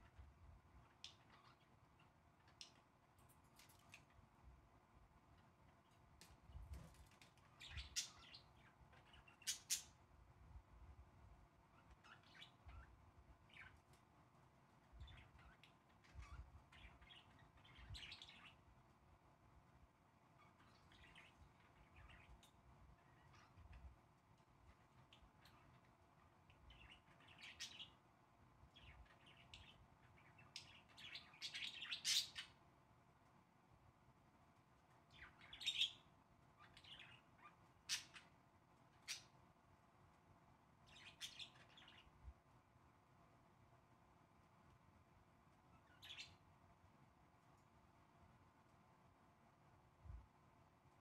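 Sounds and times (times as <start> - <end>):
budgerigars chirping: 7.5 - 10.0, 26.7 - 28.0, 28.8 - 32.6, 35.2 - 38.3, 40.9 - 42.1, 45.8 - 46.4.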